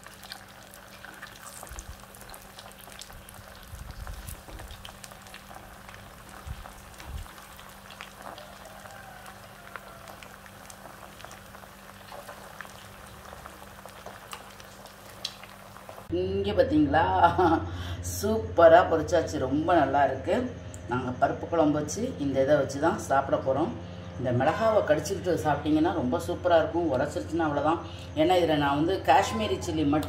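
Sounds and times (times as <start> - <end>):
oil bubbling and sizzling: 0.0 - 16.1.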